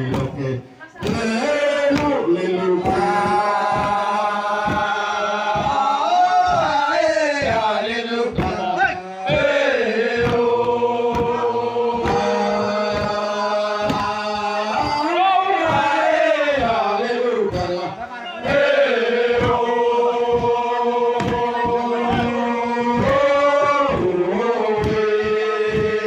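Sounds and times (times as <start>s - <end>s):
men chanting in unison: 0.0s - 26.0s
steady beat of strokes: 0.0s - 26.0s.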